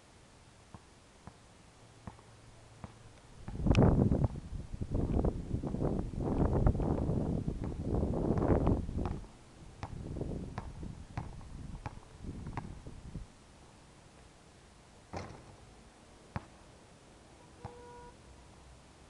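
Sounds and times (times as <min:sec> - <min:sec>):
basketball bouncing on court: 0:02.0 - 0:04.4, 0:07.6 - 0:09.2, 0:10.6 - 0:12.8, 0:15.1 - 0:15.5.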